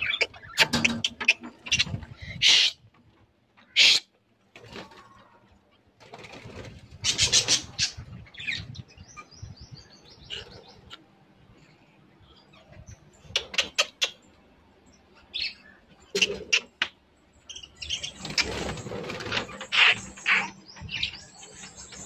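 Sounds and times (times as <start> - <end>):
wing flutter: 6.0 - 8.0, 18.0 - 20.2
budgerigars chirping: 17.5 - 22.0.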